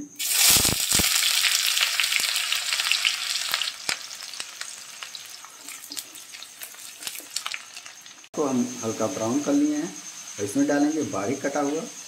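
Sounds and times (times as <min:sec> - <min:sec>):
sharp crackles: 0:00.0 - 0:08.3
onion sizzling in hot oil: 0:00.0 - 0:12.0.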